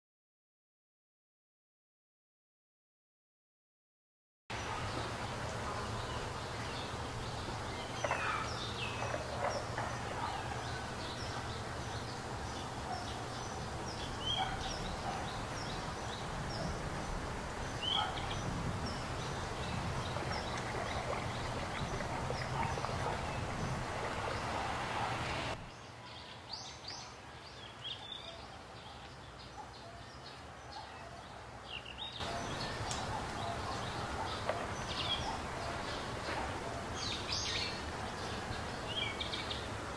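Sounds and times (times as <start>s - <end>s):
background hiss: 4.5s - 30.8s
small birds chirping: 4.6s - 31.1s, 31.7s - 39.8s.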